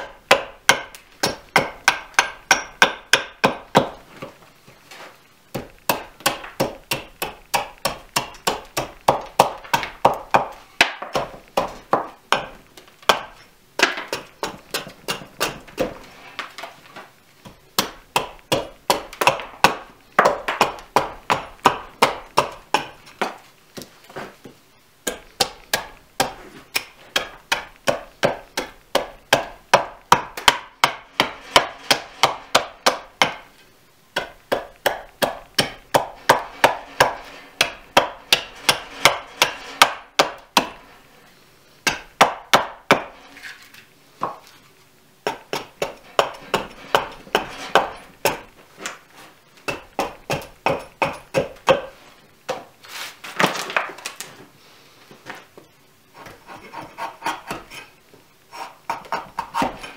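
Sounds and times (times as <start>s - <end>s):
axe chopping wood: 0.0s - 4.0s, 5.5s - 16.7s, 17.4s - 24.3s, 25.0s - 33.5s, 34.1s - 40.8s, 41.8s - 43.2s, 45.2s - 49.0s, 49.6s - 52.7s, 58.9s - 59.9s.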